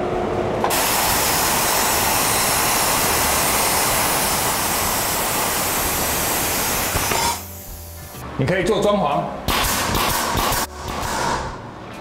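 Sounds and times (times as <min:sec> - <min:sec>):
plasma cutter air jet hissing: 0:00.7 - 0:08.2.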